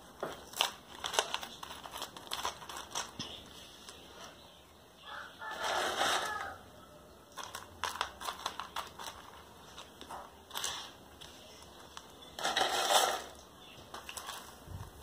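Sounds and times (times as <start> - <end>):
potting medium crunching in plastic cup: 0.0 - 4.4, 7.3 - 14.8.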